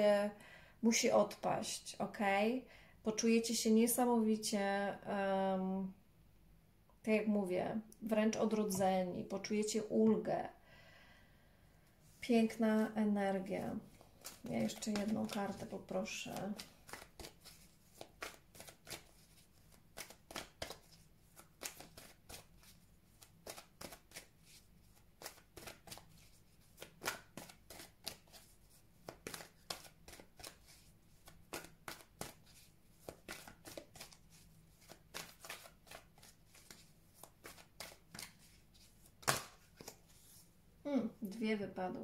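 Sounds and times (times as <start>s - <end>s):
cards being shuffled: 13.9s - 40.5s.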